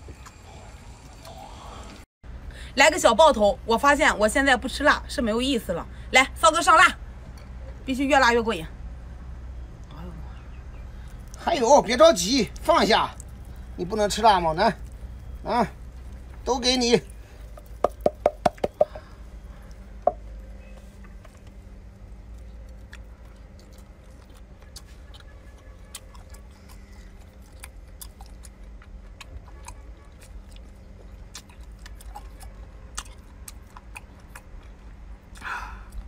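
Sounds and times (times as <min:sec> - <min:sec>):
tin can tapping: 0:17.8 - 0:19.0.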